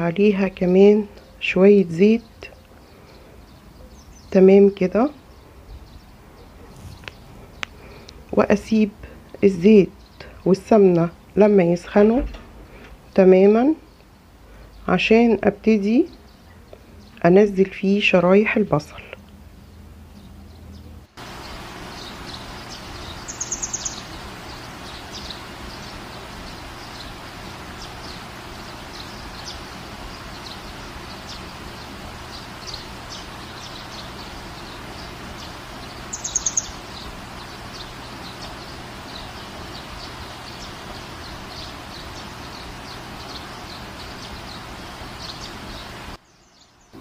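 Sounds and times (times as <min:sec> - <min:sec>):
rapid high chirps: 0:21.2 - 0:46.0.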